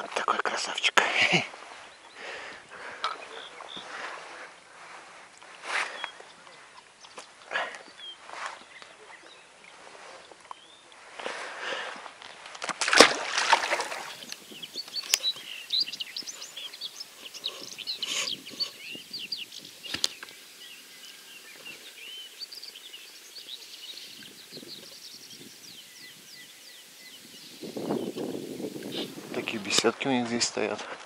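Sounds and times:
nightingales singing: 1.7 - 4.6, 13.5 - 30.7
water splashing and sloshing: 8.2 - 17.7.

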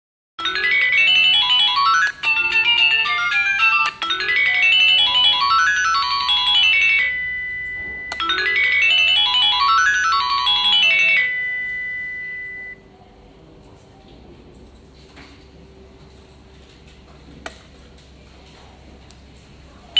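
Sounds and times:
pager beeping melodies: 0.4 - 12.8
held electronic tone: 1.9 - 12.8.

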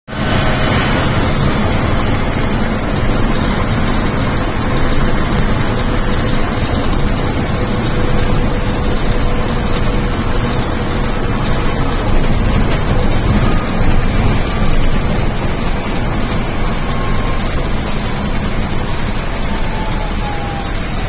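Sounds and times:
bus engine and road rumble: 0.1 - 21.0.

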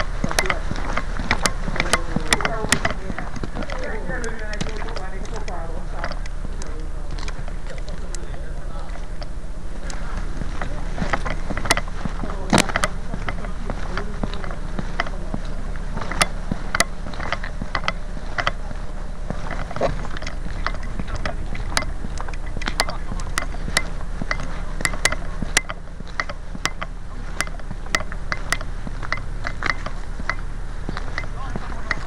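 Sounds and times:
sharp clicks and rattles: 0.0 - 32.0
steady low rumble: 0.0 - 32.0.

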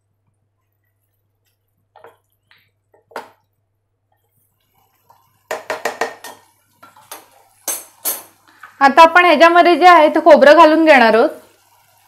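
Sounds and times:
wooden spatula stirring in pot: 0.3 - 8.8.

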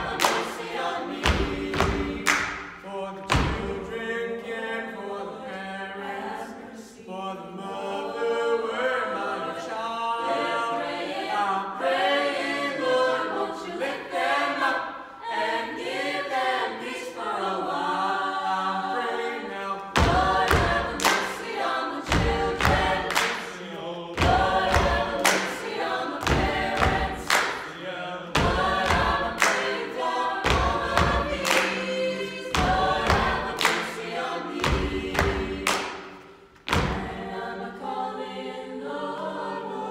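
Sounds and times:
rhythmic hand claps: 0.0 - 4.0, 19.8 - 37.8
choir singing gospel in harmony: 0.0 - 39.9.

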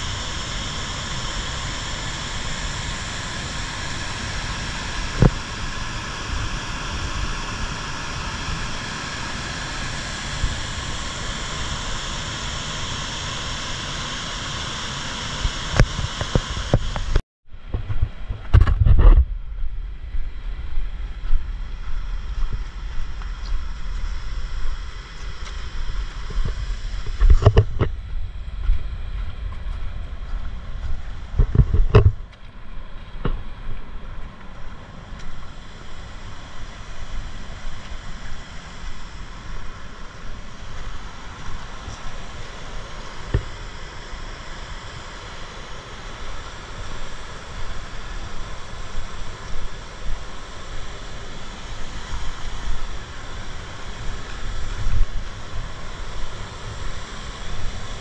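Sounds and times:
small waterfall: 0.0 - 17.2, 30.2 - 58.0
wind buffeting microphone: 15.8 - 44.2
river rapids rushing: 33.9 - 58.0.

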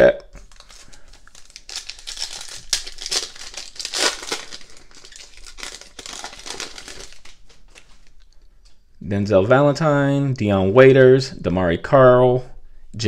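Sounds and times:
foil wrapper crinkling: 0.4 - 8.4.

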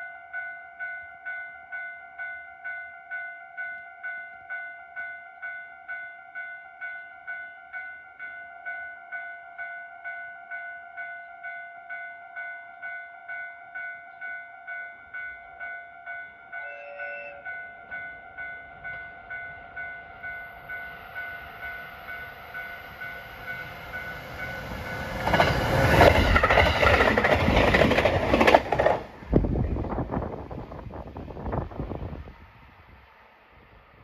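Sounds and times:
warning bell dinging: 0.0 - 25.1
train passing at speed: 10.9 - 34.0
train wheel clatter: 22.9 - 30.4.

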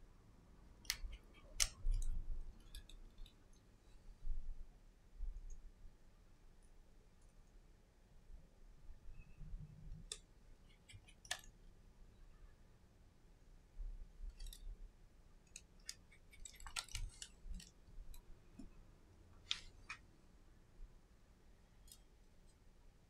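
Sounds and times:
small metal clicks and ticks: 0.8 - 3.7, 9.9 - 11.6, 14.3 - 14.7, 15.4 - 18.3, 21.8 - 22.6.

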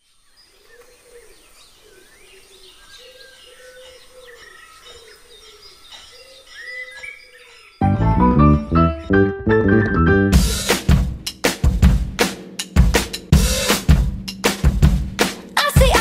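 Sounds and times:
birds chirping: 0.0 - 9.3
loud drum-led music: 10.1 - 16.0.

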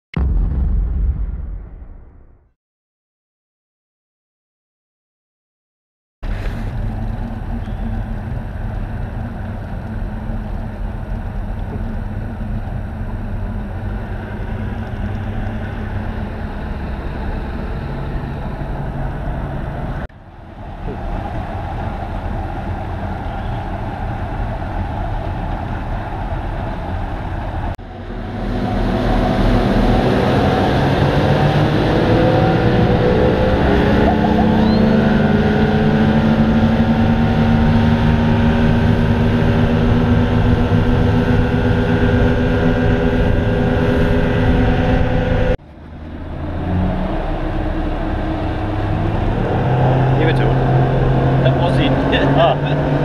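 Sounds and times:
outboard motors running: 6.3 - 53.0.

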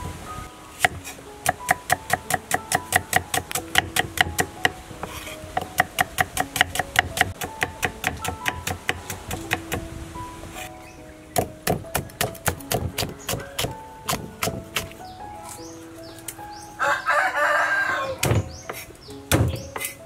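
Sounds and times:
soft background music: 0.0 - 20.0
cleaver chopping on wooden board: 0.8 - 9.8, 11.4 - 15.0, 18.2 - 20.0.

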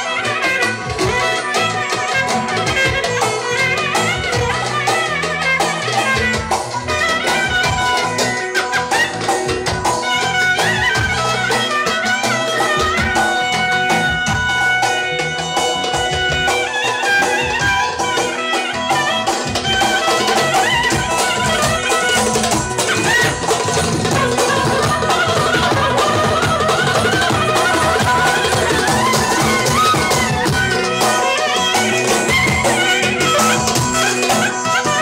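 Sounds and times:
steady drum beat: 0.0 - 35.0
wind instrument melody: 0.0 - 35.0.

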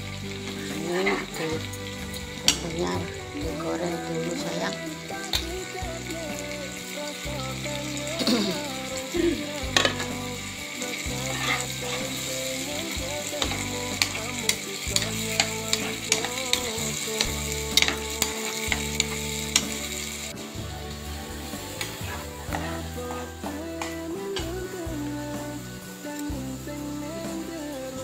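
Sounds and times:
spice paste sizzling in a pan: 0.0 - 28.0
metal spatula scraping a pan: 10.8 - 20.3.

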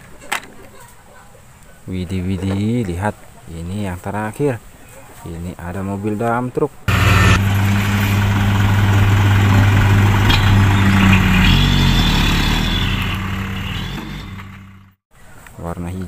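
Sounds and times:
diesel truck engine running: 6.9 - 15.0
soil load dumping: 6.9 - 15.0.

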